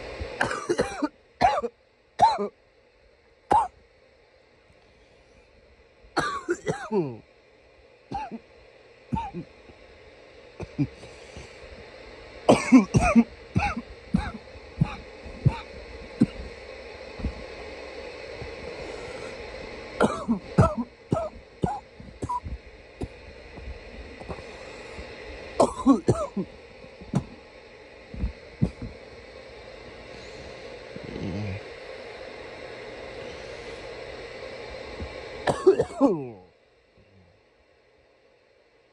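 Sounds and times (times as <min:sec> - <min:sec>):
man clearing throat: 0:00.4 - 0:02.5, 0:03.5 - 0:03.7, 0:06.2 - 0:07.2, 0:08.2 - 0:08.5, 0:09.2 - 0:09.5, 0:10.6 - 0:11.5, 0:12.5 - 0:16.5, 0:20.0 - 0:23.2, 0:25.6 - 0:26.5, 0:35.5 - 0:36.4
man coughing: 0:00.4 - 0:02.5, 0:03.5 - 0:03.7, 0:06.2 - 0:07.2, 0:08.1 - 0:08.4, 0:09.2 - 0:09.5, 0:10.6 - 0:11.5, 0:12.5 - 0:16.5, 0:20.0 - 0:22.5, 0:25.6 - 0:26.5, 0:35.5 - 0:36.4.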